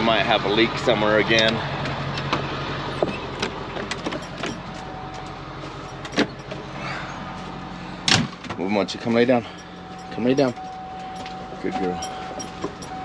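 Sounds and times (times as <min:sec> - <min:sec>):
van side door opening: 0:02.2 - 0:07.1
person climbing into van: 0:02.2 - 0:08.6, 0:09.6 - 0:13.0.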